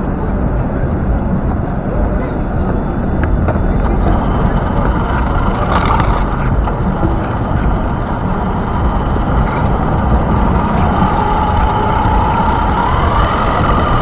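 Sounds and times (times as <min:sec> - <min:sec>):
tyres rumbling on pavement: 0:00.0 - 0:14.0
wind on microphone: 0:00.0 - 0:14.0
motor whine: 0:03.3 - 0:14.0.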